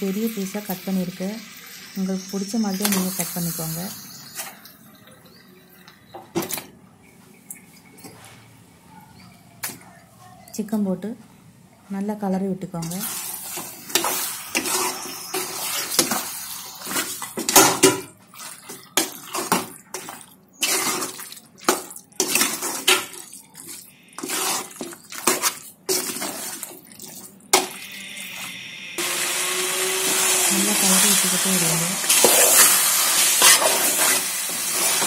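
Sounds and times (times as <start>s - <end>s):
metal spoon scraping a pot: 32.1s - 35.0s.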